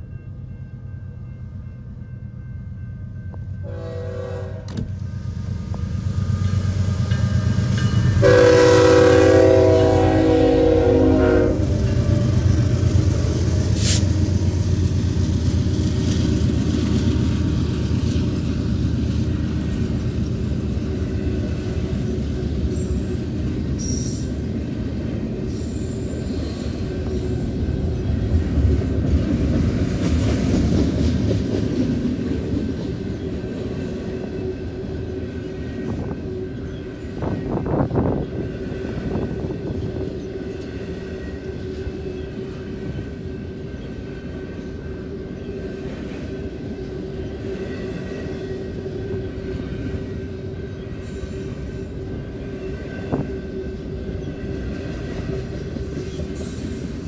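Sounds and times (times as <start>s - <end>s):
train cars rumbling and rattling: 0.0s - 57.0s
train horn blasts: 3.6s - 4.9s, 7.9s - 12.9s.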